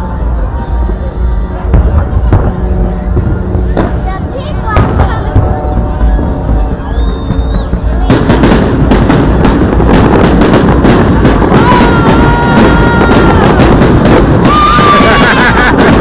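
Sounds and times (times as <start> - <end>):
steady high note: 0.0 - 11.6
fireworks cracks and bangs: 0.0 - 16.0.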